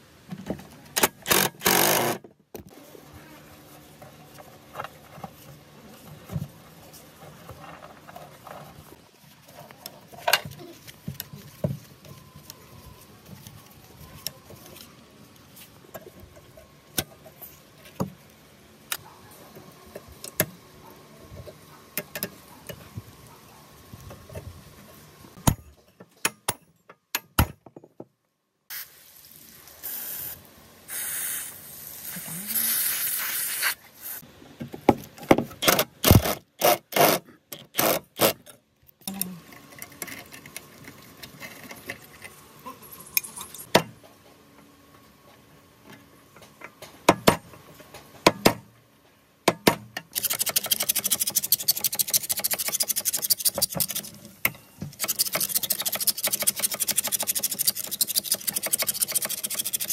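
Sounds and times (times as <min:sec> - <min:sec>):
sharp metal knocks: 0:25.4 - 0:27.9.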